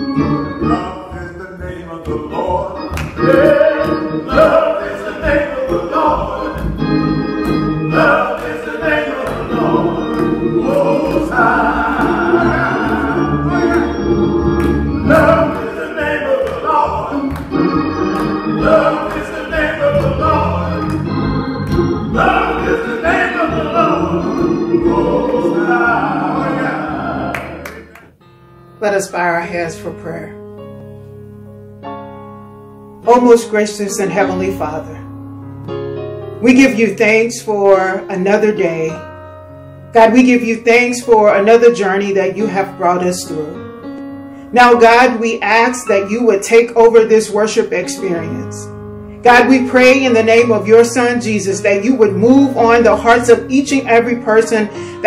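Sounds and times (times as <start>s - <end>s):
organ accompaniment: 0.0s - 55.0s
men singing gospel: 0.2s - 27.9s.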